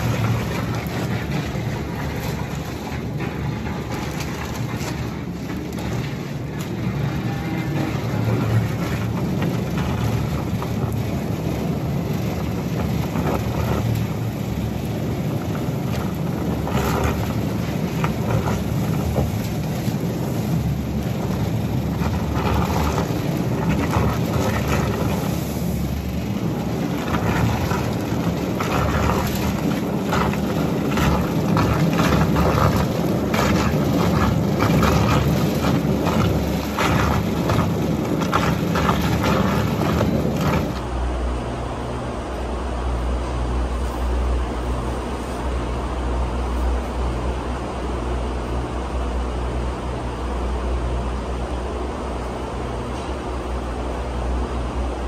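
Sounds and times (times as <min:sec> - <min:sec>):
faint clicks and knocks: 0:00.0 - 0:40.9
engine low rumble: 0:00.0 - 0:55.0.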